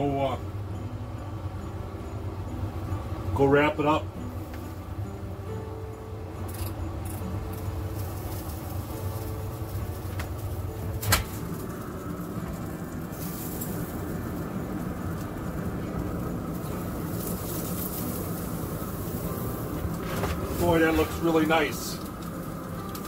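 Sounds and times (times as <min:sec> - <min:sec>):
grill fan humming: 0:00.0 - 0:23.0.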